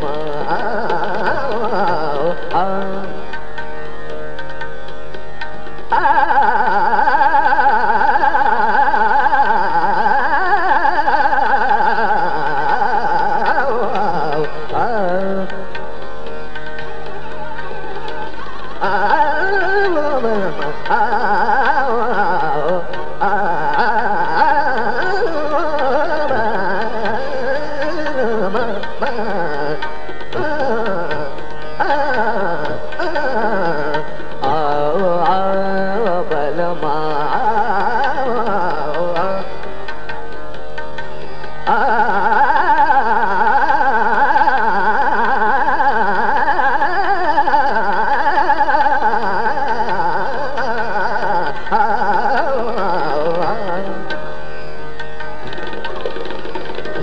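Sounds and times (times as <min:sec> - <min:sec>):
man singing melodic runs: 0:00.0 - 0:03.3, 0:32.1 - 0:39.6
instrumental accompaniment: 0:00.0 - 0:57.0.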